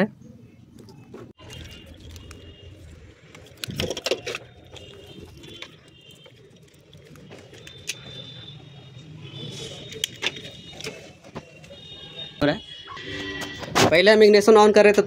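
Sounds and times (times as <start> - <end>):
plastic connectors clicking: 1.4 - 8.1.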